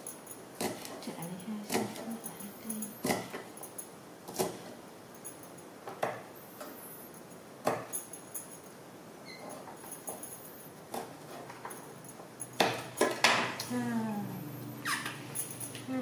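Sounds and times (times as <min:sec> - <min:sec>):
knife chopping on wooden board: 0:00.6 - 0:01.0, 0:04.3 - 0:04.7.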